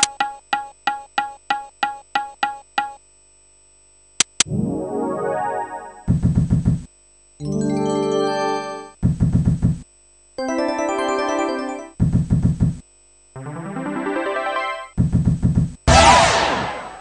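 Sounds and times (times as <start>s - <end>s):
sharp clicks: 0.0s - 0.6s
held synth chord: 4.5s - 6.1s, 7.4s - 9.0s, 10.4s - 12.0s, 13.4s - 14.9s.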